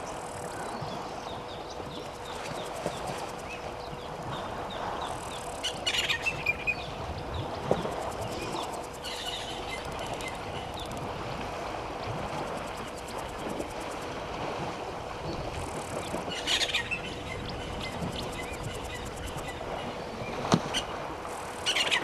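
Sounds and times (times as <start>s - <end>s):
birds chirping: 0.0s - 11.0s
faint steady hum: 0.0s - 22.0s.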